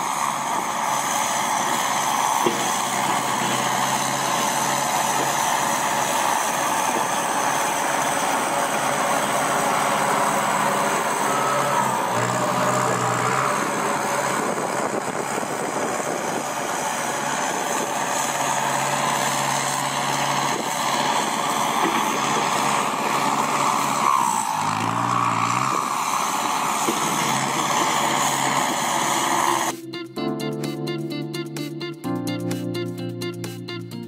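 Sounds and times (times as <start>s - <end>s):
tractor diesel engine droning: 0.0s - 32.3s.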